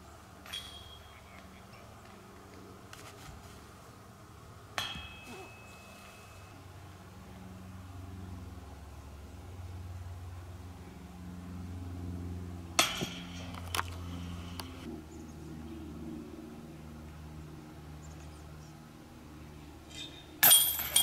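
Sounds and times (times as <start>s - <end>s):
low steady hum: 0.0s - 21.0s
disc hitting metal basket chains: 0.4s - 1.1s, 4.8s - 6.5s, 19.9s - 21.0s.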